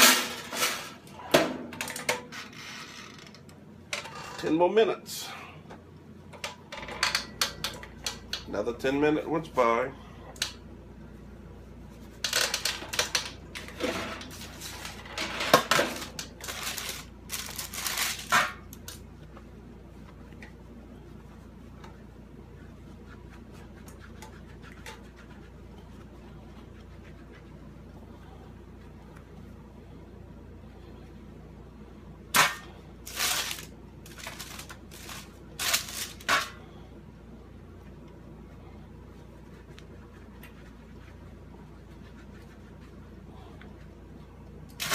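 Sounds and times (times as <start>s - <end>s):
baking paper crinkling: 12.1s - 19.1s, 33.0s - 36.4s.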